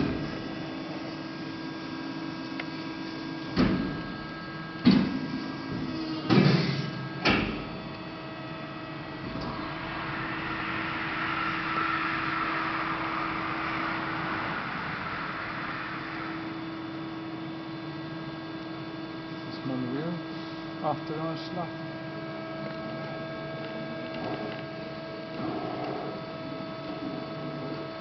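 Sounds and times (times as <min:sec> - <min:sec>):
rushing whirring noise: 0:00.0 - 0:28.0
hydraulic pump humming: 0:02.1 - 0:19.5.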